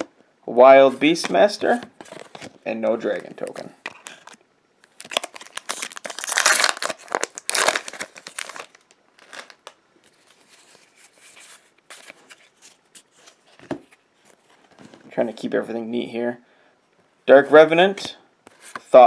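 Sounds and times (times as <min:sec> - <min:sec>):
wrapper being torn and crinkled: 0:04.1 - 0:09.8.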